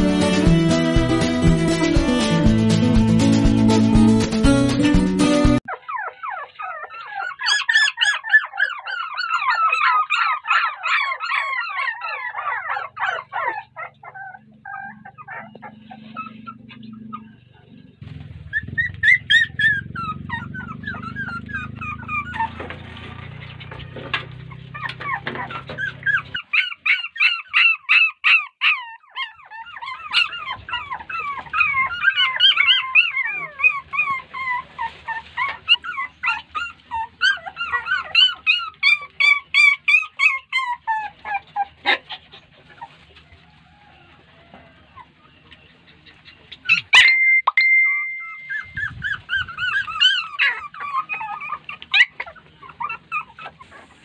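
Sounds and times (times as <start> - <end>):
puppies whining and yelping: 5.6 - 54.0
short high tone: 47.0 - 48.9.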